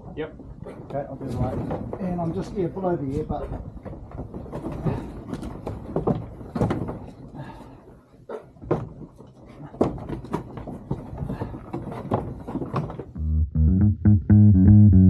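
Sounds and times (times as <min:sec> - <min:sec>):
sheep knocking and clattering: 0:00.4 - 0:07.4, 0:08.4 - 0:13.2
background music with bass and guitar: 0:13.2 - 0:15.0.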